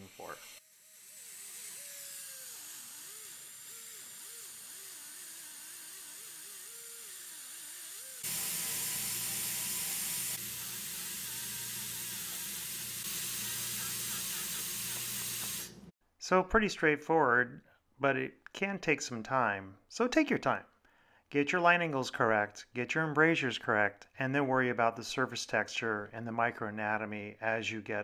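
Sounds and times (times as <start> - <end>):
dental handpiece whirring: 0.0 - 15.9.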